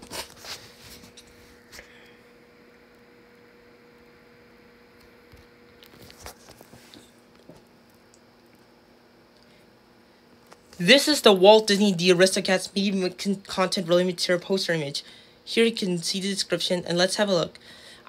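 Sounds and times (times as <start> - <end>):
low electrical hum: 0.0 - 18.0
faint handling clicks and rustles: 5.2 - 8.7.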